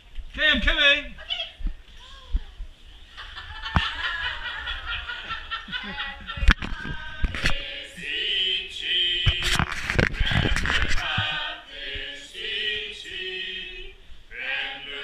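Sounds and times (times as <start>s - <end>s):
group of people laughing: 3.1s - 6.8s.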